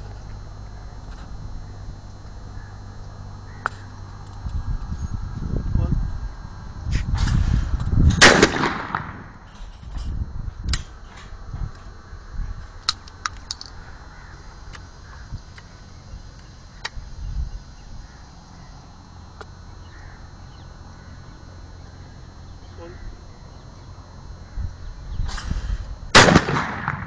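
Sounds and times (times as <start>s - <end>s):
low steady rumble: 0.0s - 27.0s
shotgun shot: 7.2s - 9.4s, 25.3s - 27.0s.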